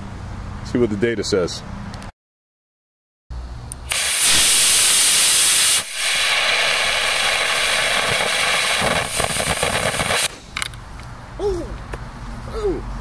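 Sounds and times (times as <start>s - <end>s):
crackling hiss: 3.7s - 10.7s
rocket motor hissing: 3.8s - 10.5s.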